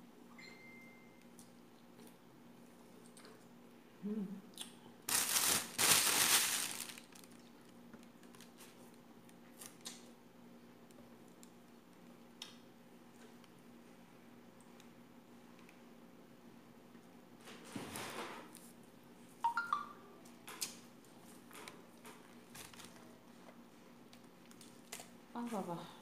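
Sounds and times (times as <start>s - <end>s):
plastic bag rustling: 5.1s - 7.5s.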